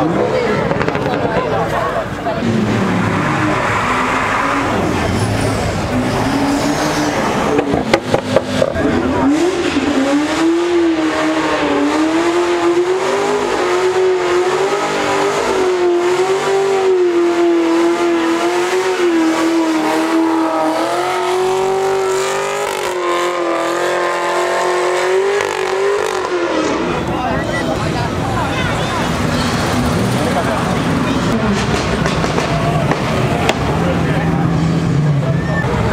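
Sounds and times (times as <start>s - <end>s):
car engine revving high: 0.0s - 35.9s.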